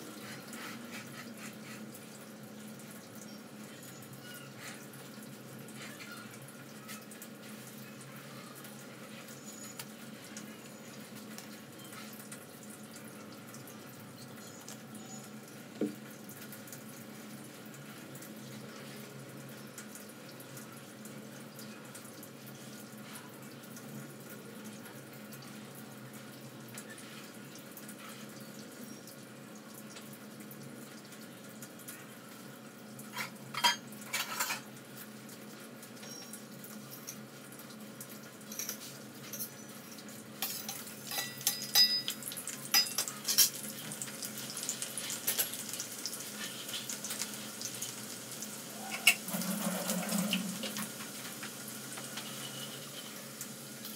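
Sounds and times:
garlic sizzling in hot oil: 0.0s - 53.9s
utensils clinking: 33.1s - 34.7s, 38.4s - 43.7s.

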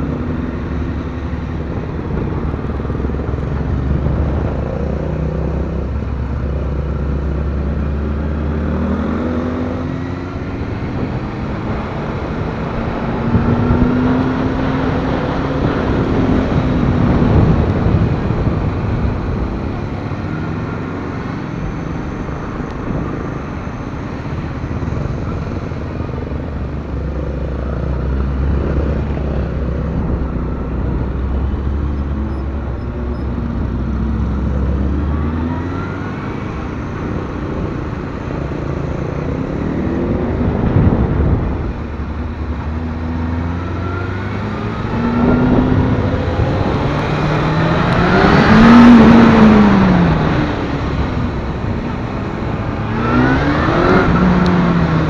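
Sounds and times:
low rumble: 0.0s - 7.5s, 10.3s - 55.0s.

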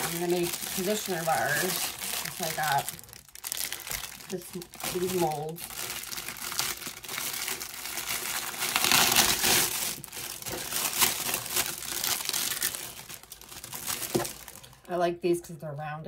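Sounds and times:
packaging crinkling and rustling: 0.0s - 14.9s.

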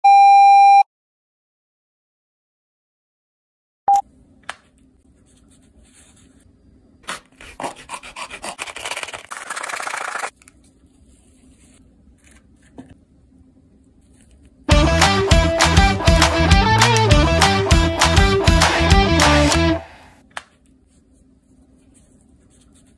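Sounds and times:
hacksaw sawing through plastic: 7.1s - 9.3s
music: 14.7s - 20.0s.

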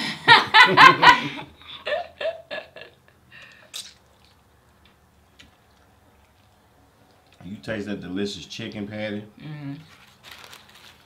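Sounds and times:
people laughing and giggling: 0.0s - 3.0s
chewing sandwiches: 3.5s - 7.5s.

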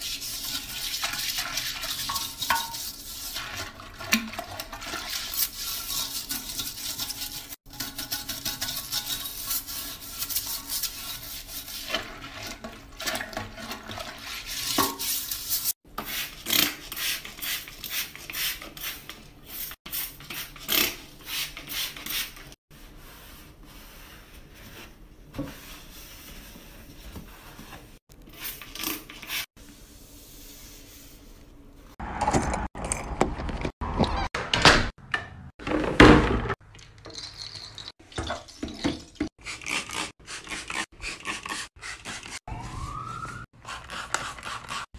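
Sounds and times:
toilet brush scrubbing: 0.0s - 32.0s, 37.1s - 44.9s.

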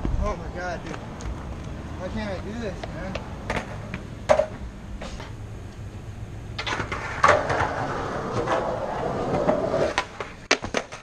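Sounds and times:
skateboard wheels rolling on concrete: 0.0s - 11.0s
skateboard clacks: 2.8s - 4.6s, 6.6s - 11.0s.

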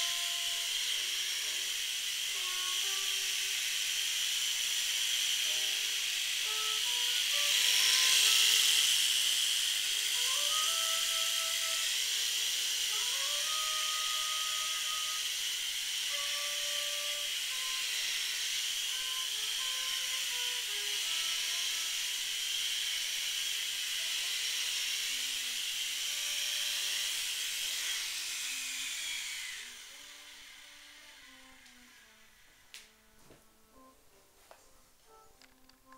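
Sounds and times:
toy helicopter rotors whining: 0.0s - 33.9s
faint music: 26.3s - 35.9s.

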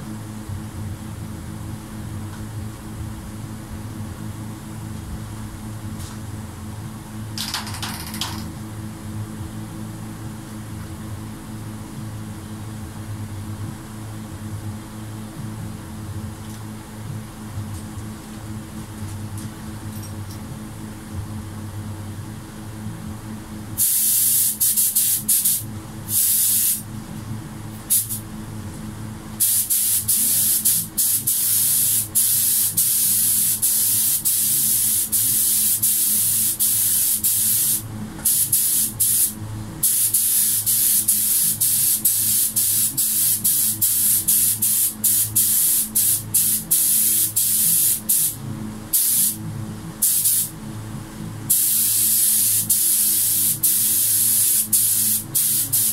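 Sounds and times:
steady low hum: 0.0s - 55.9s
spray gun hissing in bursts: 23.8s - 26.8s, 27.9s - 28.2s, 29.4s - 49.4s, 50.0s - 50.5s, 51.5s - 55.9s.

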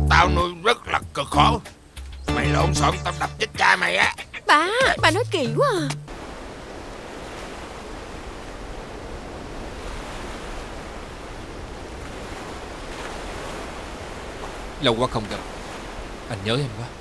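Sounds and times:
small waves washing over rocks: 6.1s - 17.0s.

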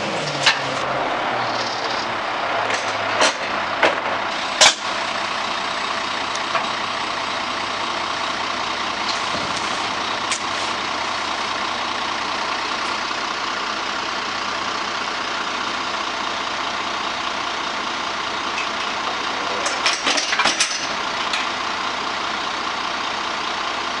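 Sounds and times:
diesel engine running: 0.0s - 24.0s
metal dumpster clanks: 18.6s - 21.4s.

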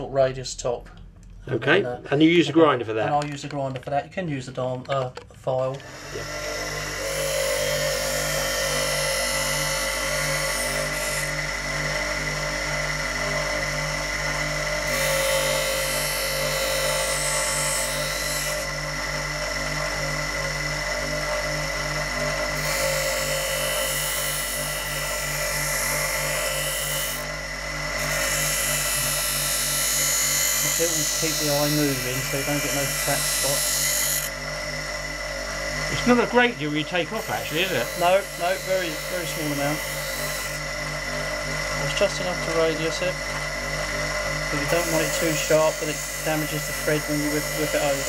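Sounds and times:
bench grinder motor hum: 4.6s - 48.0s
high grinding hiss: 5.7s - 13.2s, 22.3s - 34.4s, 35.8s - 43.5s, 44.4s - 48.0s.

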